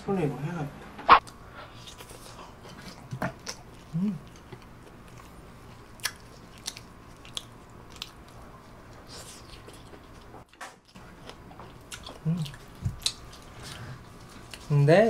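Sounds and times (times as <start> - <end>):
person chewing: 1.1 - 14.7
person humming: 3.9 - 4.3.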